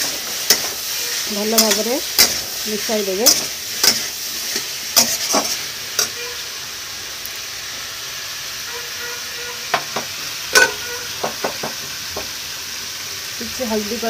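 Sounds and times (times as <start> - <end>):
metal spatula scraping pan: 0.0 - 2.5, 3.2 - 6.4, 10.5 - 11.3
vegetables sizzling in pan: 0.0 - 14.0.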